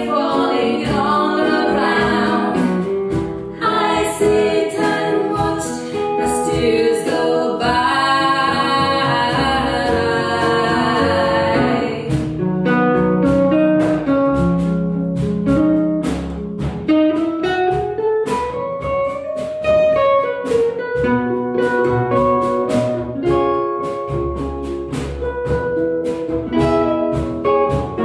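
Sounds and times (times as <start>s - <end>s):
double bass low notes: 0.0s - 16.9s, 21.0s - 28.0s
acoustic guitar picking melody: 0.0s - 28.0s.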